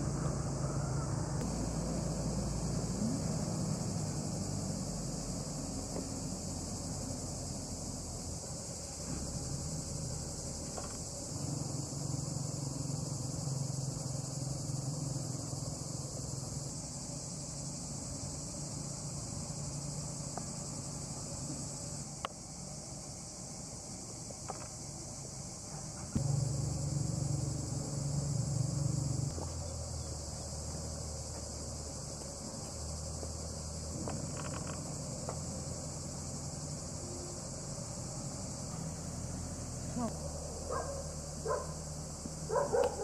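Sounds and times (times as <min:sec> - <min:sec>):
insect chorus: 0:00.0 - 0:43.0
low steady hum: 0:26.2 - 0:31.1.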